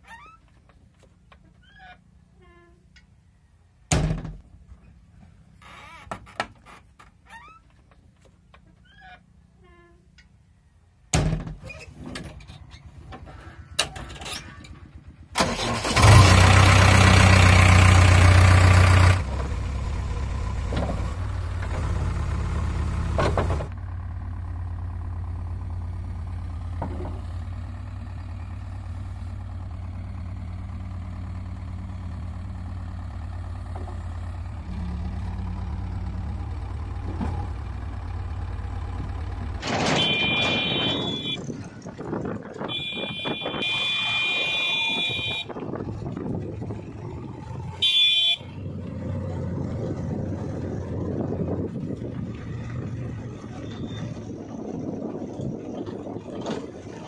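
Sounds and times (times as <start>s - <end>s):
diesel engine starting and idling: 11.3s - 57.0s
high beeping: 40.0s - 41.4s.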